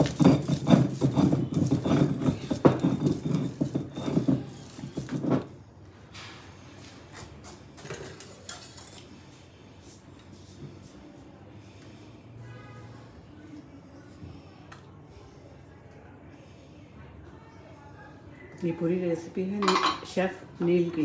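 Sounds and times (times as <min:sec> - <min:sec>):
stone roller knocking and scraping: 0:00.0 - 0:05.6.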